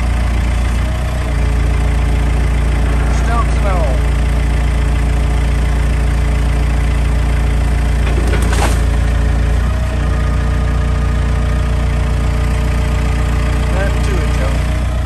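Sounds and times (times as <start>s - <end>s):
machine engine running: 0.0s - 15.0s.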